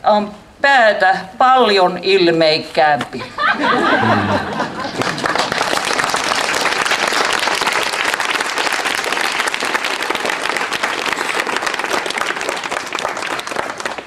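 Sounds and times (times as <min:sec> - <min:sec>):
audience applauding: 0:04.0 - 0:14.0.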